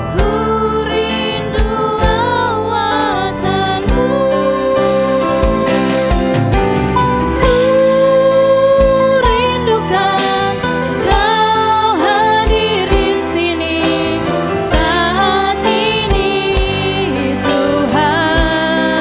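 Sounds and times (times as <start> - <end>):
women singing: 0.0 - 6.0, 7.4 - 19.0
bass: 0.0 - 19.0
guitar: 0.0 - 19.0
keyboard chords: 0.0 - 19.0.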